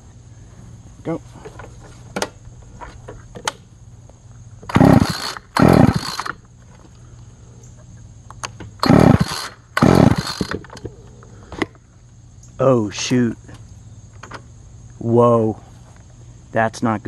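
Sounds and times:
recoil starter cranking engine: 4.7 - 6.4, 8.8 - 10.8.

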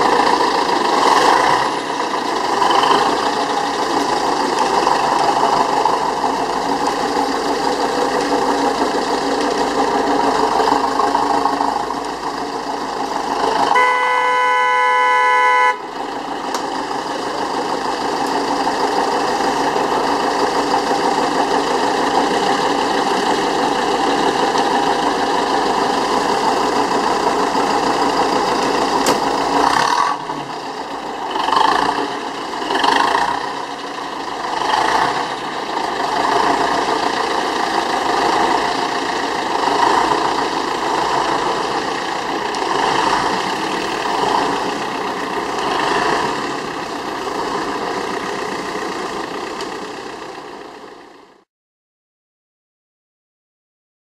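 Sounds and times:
diesel truck engine idling: 0.0 - 51.5.

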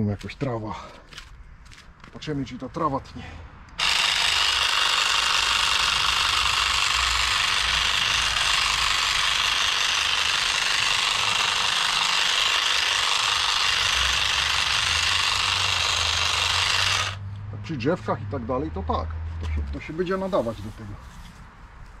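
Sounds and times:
electric grass shears buzzing: 3.8 - 17.2.

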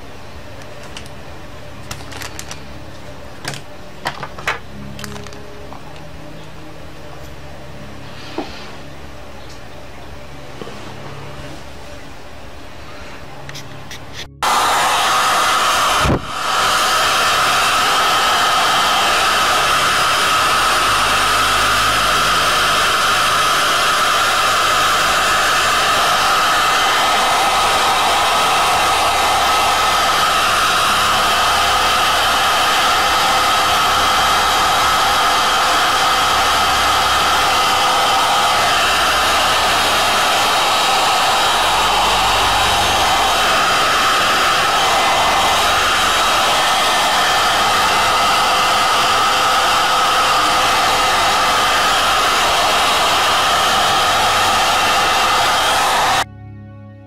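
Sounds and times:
hot air gun blowing: 14.4 - 56.2.

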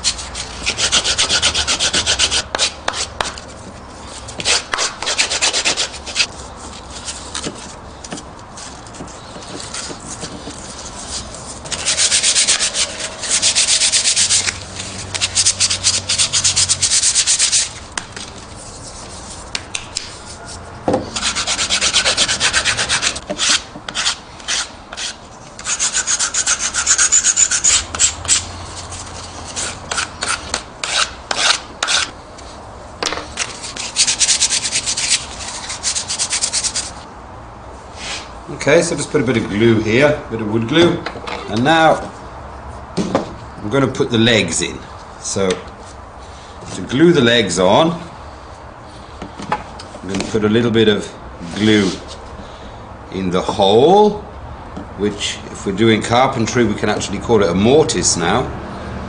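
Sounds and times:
sandpaper scratching wood: 0.0 - 3.5, 4.2 - 7.2, 8.6 - 32.1, 33.4 - 37.0.

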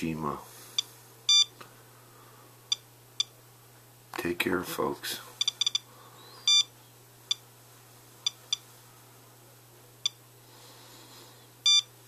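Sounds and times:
dosimeter long beep: 0.8 - 1.5, 5.4 - 6.7, 11.6 - 11.9
dosimeter high electronic chirps: 1.3 - 1.5, 5.4 - 7.4, 11.6 - 11.9.

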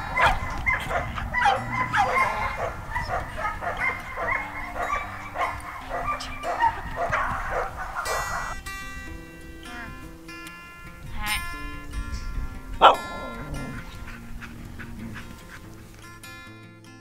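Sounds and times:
dogs yipping and whining: 0.0 - 8.7, 12.7 - 16.4
background music: 0.0 - 17.0.

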